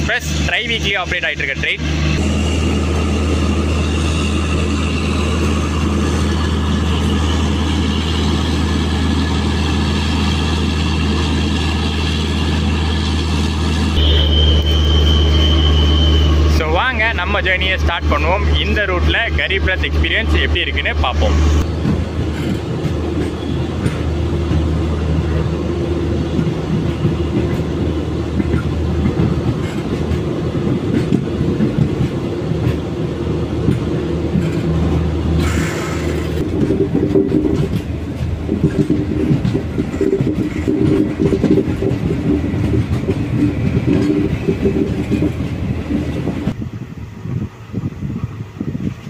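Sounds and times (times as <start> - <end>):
train wheels clattering on rails: 21.6 - 46.6.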